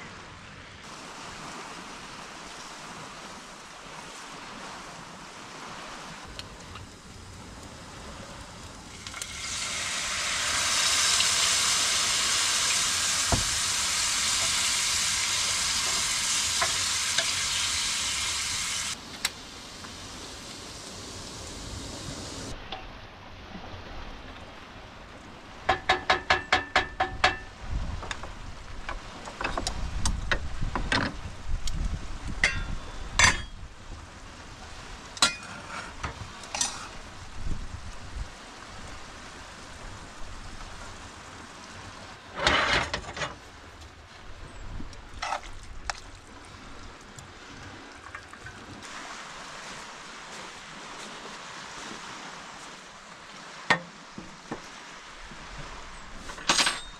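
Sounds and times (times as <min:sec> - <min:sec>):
food sizzling: 0:08.9 - 0:22.5
utensils clinking on cookware: 0:32.4 - 0:33.6, 0:35.2 - 0:35.7, 0:56.3 - 0:56.9.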